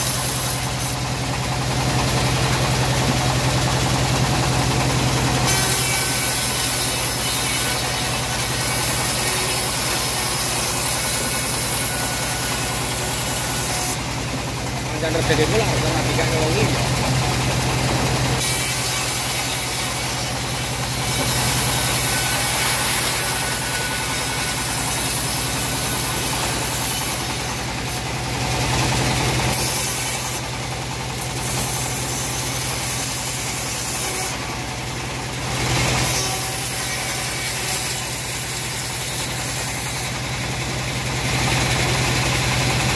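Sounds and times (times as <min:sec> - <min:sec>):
bandsaw engine hum: 0:00.0 - 0:42.9
high hiss of bandsaw: 0:05.5 - 0:14.0, 0:21.0 - 0:27.6, 0:31.6 - 0:34.4, 0:36.0 - 0:40.1.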